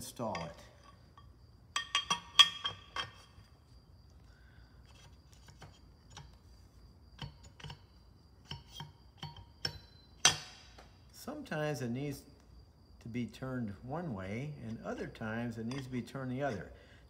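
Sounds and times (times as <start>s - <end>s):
metal parts clinking: 0.2s - 3.4s.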